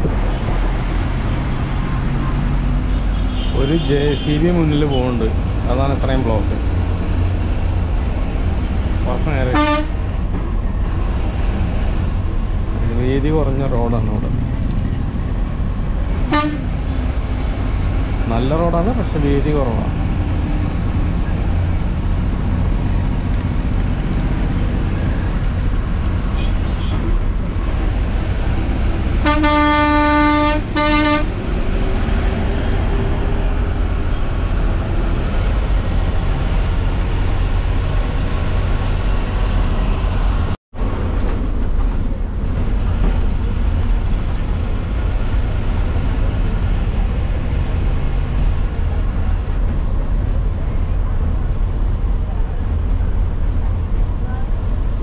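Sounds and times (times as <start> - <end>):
diesel bus engine rumbling: 0.0 - 55.0
road noise: 0.0 - 55.0
horn blasts: 9.5 - 10.0, 16.2 - 16.8, 29.2 - 31.4.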